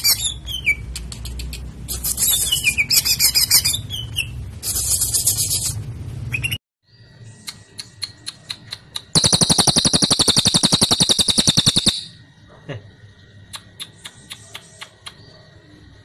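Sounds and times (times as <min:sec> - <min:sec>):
rapid clicking rattle: 0:09.2 - 0:12.1.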